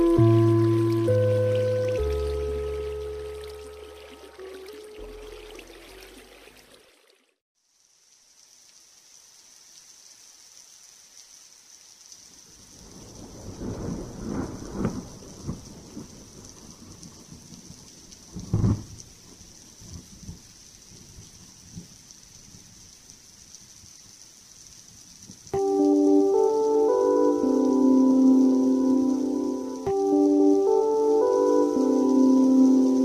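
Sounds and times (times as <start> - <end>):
steady rain hiss: 0.0 - 4.3, 7.6 - 33.0
background music: 0.0 - 5.9, 25.6 - 33.0
sharp thunderclap: 12.8 - 16.8, 18.4 - 18.9
thunder rolling: 12.8 - 17.3.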